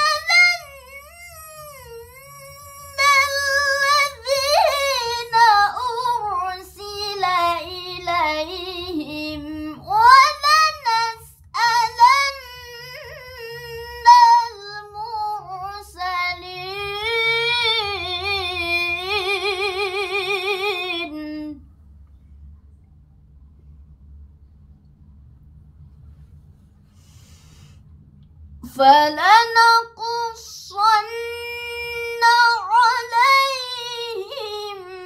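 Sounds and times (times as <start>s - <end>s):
girl reciting melodically: 0.0s - 21.6s, 28.6s - 35.0s.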